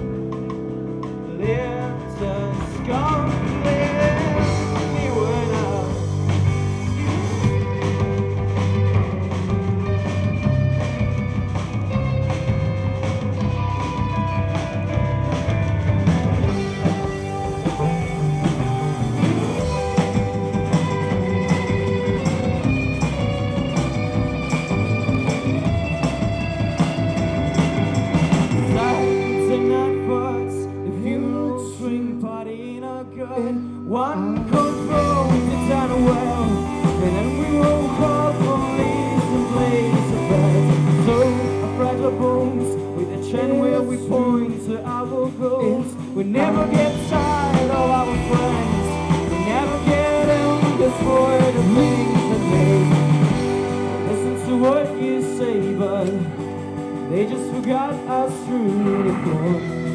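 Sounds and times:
live rock band playing: 0:00.0 - 0:59.9
man singing: 0:01.1 - 0:09.0, 0:27.5 - 0:59.9.

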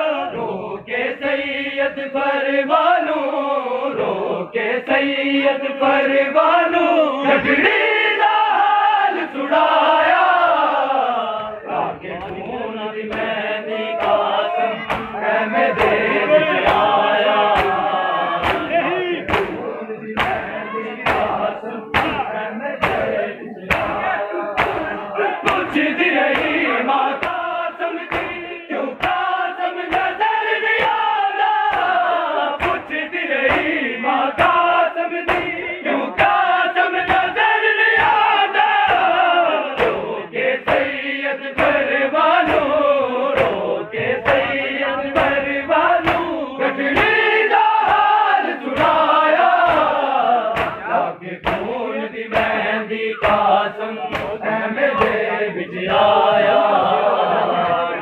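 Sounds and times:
crowd of men chanting: 0:00.0 - 0:58.0
hands slapping chests: 0:11.4 - 0:34.6, 0:35.2 - 0:38.2, 0:38.8 - 0:40.0, 0:40.6 - 0:41.0, 0:41.6 - 0:55.3.

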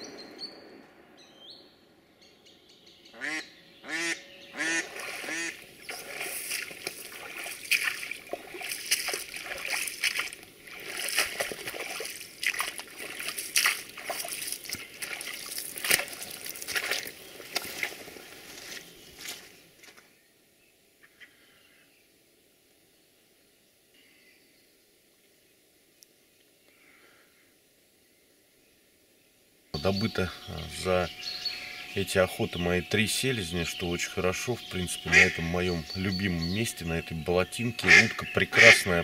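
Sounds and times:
duck quacking: 0:03.2 - 0:06.1, 0:34.8 - 0:39.0
water splashing: 0:04.6 - 0:19.5.

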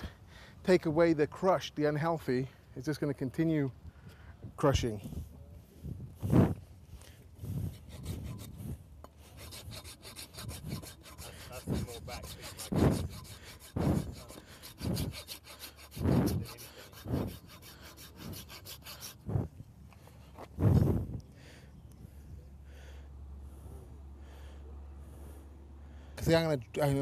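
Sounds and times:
rasp scraping a horse's hoof: 0:07.4 - 0:19.6.

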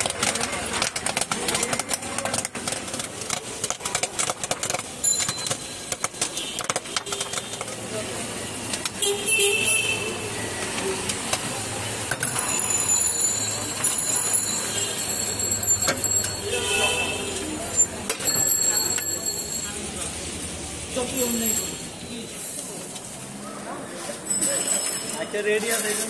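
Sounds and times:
popcorn pan clicks and rattles: 0:00.0 - 0:09.0
vehicle horn toots: 0:09.0 - 0:10.3, 0:16.5 - 0:17.4.

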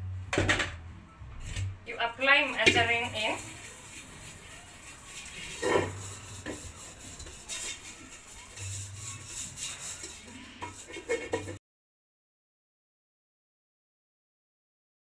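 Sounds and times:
metal pot knocking and scraping: 0:00.3 - 0:00.8, 0:02.4 - 0:11.6
hand rubbing inside metal pot: 0:01.4 - 0:11.6.

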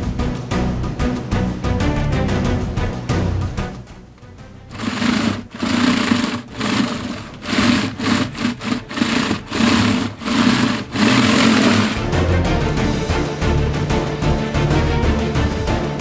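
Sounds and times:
plastic track links rattling: 0:04.7 - 0:12.0.

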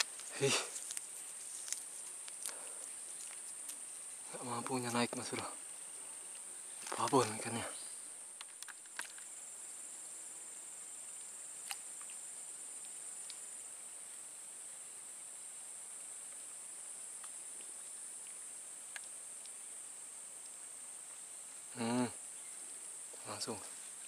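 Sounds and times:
faint clicks: 0:00.0 - 0:03.8, 0:17.2 - 0:19.6
high-pitched insect buzz: 0:00.0 - 0:24.0.

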